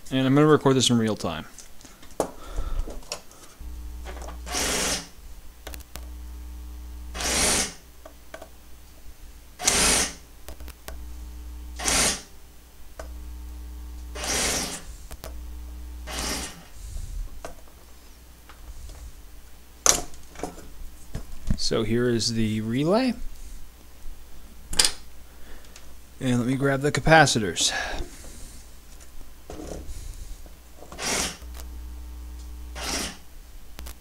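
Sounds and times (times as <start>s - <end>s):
reciprocating saw driving pump: 3.6s - 5.1s, 5.7s - 7.8s, 9.6s - 10.2s, 10.9s - 12.3s, 13.0s - 16.8s, 31.0s - 33.2s
short hissing suction bursts: 3.6s - 5.2s, 5.8s - 7.8s, 9.6s - 10.2s, 11.0s - 12.3s, 14.1s - 17.3s, 31.0s - 33.2s.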